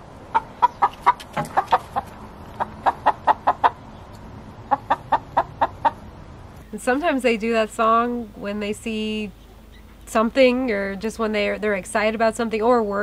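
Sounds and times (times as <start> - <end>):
hen clucking: 0.3 - 6.1.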